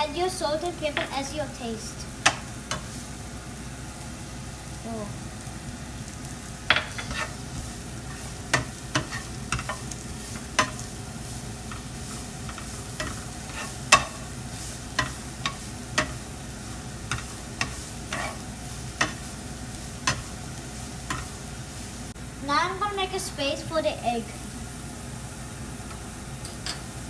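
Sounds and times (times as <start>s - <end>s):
vegetables sizzling in a pan: 0.0s - 27.0s
spatula knocking and scraping pan: 2.2s - 2.9s, 6.7s - 11.0s, 11.7s - 14.3s, 14.9s - 16.4s, 17.0s - 19.3s, 20.0s - 20.4s, 21.0s - 21.4s.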